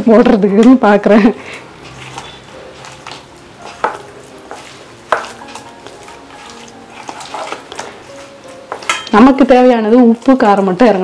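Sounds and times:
hand mixing wet paste: 1.6 - 8.9.

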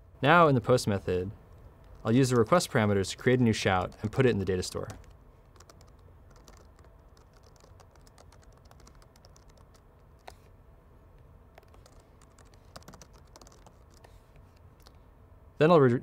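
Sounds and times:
keyboard typing: 3.3 - 10.5, 11.5 - 14.2.

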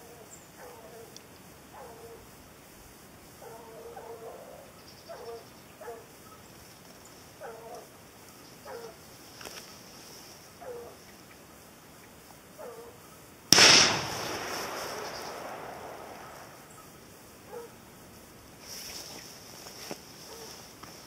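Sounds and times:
hounds baying: 3.4 - 6.2, 10.6 - 11.0
sharp click: 13.6 - 16.6.

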